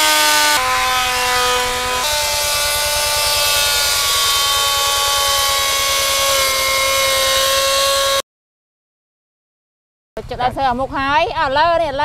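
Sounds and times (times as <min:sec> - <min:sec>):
power tool motor whining: 0:00.0 - 0:08.2.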